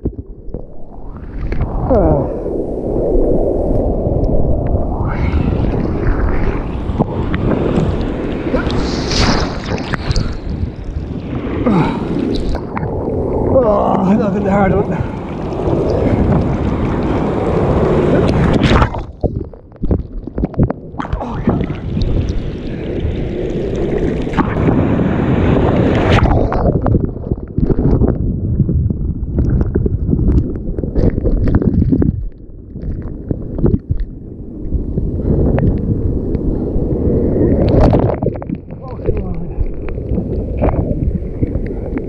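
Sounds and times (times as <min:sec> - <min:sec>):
wind buffeting microphone: 0:00.0 - 0:42.0
surf rushing and splashing: 0:00.7 - 0:28.0.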